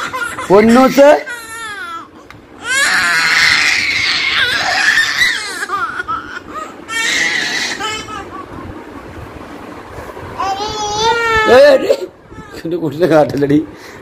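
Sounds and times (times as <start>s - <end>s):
baby squealing: 0.0s - 8.6s.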